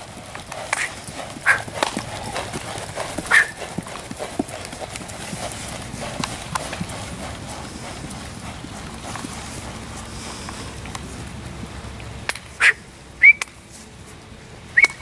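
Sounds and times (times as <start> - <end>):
horse hooves trotting on gravel: 0.0 - 14.5
dog barking: 0.8 - 1.7, 3.3 - 3.6, 12.6 - 12.8.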